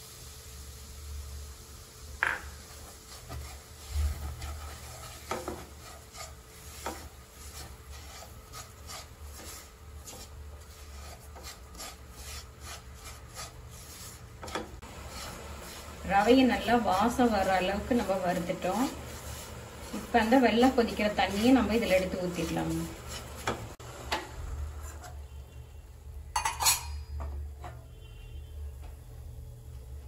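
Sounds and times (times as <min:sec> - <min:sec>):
spatula knocking against pan: 0:02.2 - 0:02.6
spatula scraping a pan: 0:02.6 - 0:23.8, 0:24.7 - 0:25.3.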